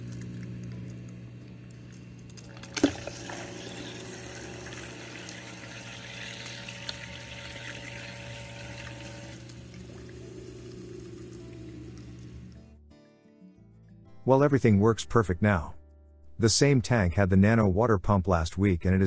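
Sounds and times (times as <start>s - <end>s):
aquarium equipment hum: 0.0s - 12.7s
water trickling: 2.5s - 12.6s.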